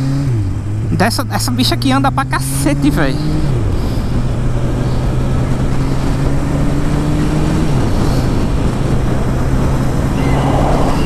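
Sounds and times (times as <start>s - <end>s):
motorcycle engine running: 0.0s - 11.0s
wind noise: 3.3s - 11.0s.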